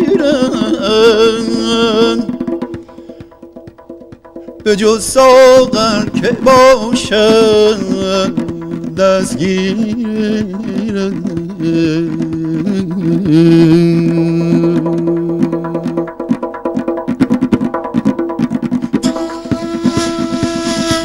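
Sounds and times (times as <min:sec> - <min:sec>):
man singing wordless vocal line: 0:00.0 - 0:02.9, 0:04.6 - 0:16.2
goblet drum strokes: 0:00.0 - 0:21.0.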